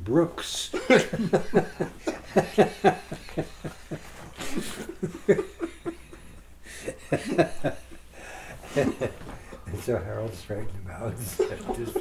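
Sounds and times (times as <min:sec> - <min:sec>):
old man chuckling: 0:00.8 - 0:09.6, 0:11.3 - 0:12.0.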